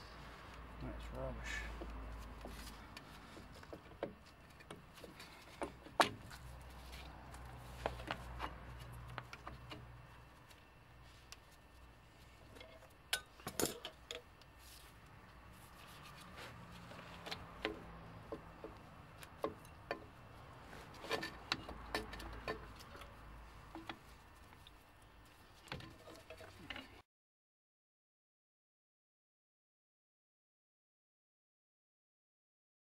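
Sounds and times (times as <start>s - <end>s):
light clicks and knocks of brake parts: 0.5s - 10.6s, 16.1s - 20.2s, 20.8s - 26.9s.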